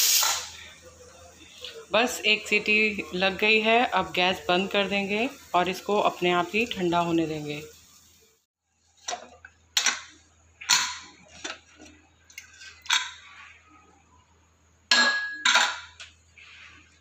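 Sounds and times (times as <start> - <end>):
metal lid clanking: 14.9 - 16.0.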